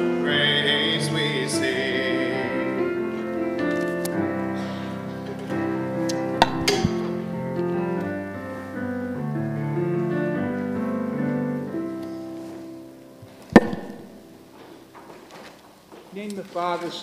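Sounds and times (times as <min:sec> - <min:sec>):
hymn chords on keyboard: 0:00.0 - 0:14.6
sharp knock: 0:06.4 - 0:07.1, 0:13.6 - 0:14.3.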